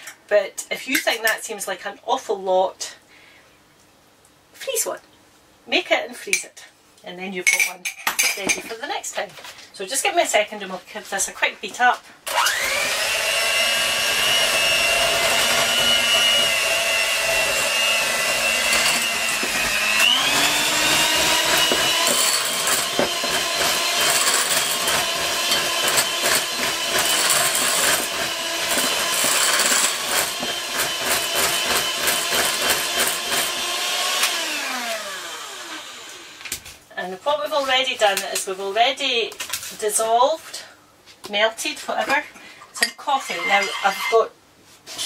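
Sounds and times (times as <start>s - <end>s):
electric hand mixer whining: 12.3s - 36.5s.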